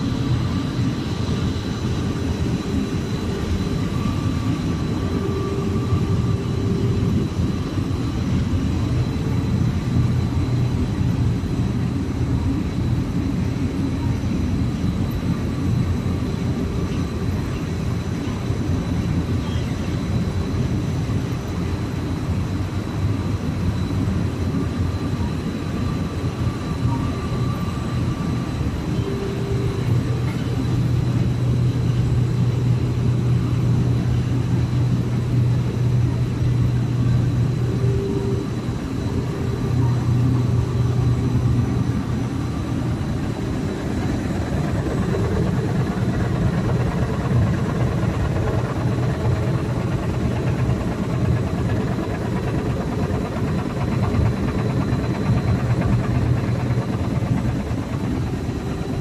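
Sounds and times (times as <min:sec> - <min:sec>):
machine drone with low hum: 0:00.0 - 0:59.0.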